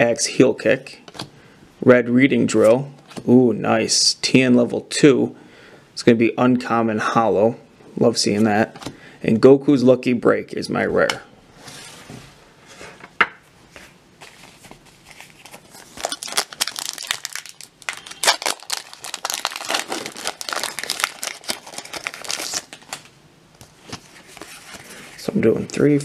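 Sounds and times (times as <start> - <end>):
wrapper crackling as torn open: 15.1 - 23.1.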